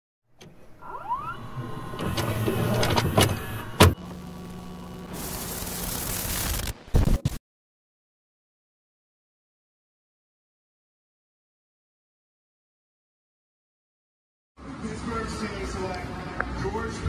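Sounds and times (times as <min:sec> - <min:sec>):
mechanical clicks and clunks: 0:00.3 - 0:04.2
motor whirring up in pitch: 0:00.6 - 0:06.6
steady hum: 0:01.0 - 0:07.4
tape hiss: 0:04.0 - 0:07.3.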